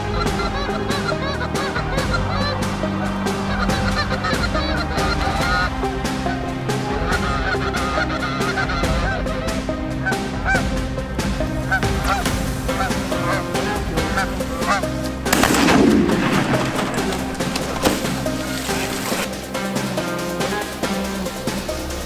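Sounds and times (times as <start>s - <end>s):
geese honking: 0.0s - 22.0s
shotgun fire: 15.3s - 18.2s.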